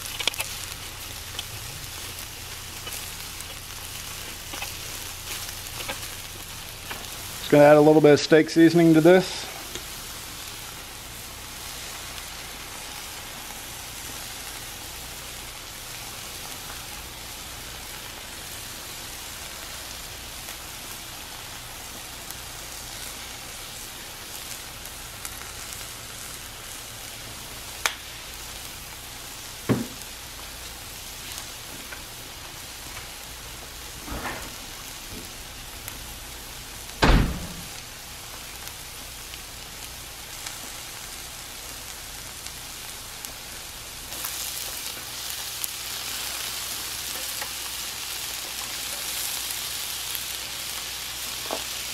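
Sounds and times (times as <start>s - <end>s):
meat sizzling on a griddle: 0.0s - 51.9s
sharp knocks: 37.0s - 37.7s.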